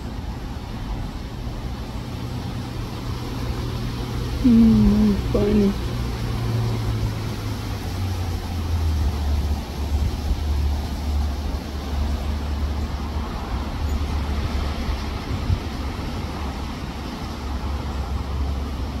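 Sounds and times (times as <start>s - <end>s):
hiss of blowing wind: 0.0s - 19.0s
wind buffeting microphone: 5.2s - 19.0s.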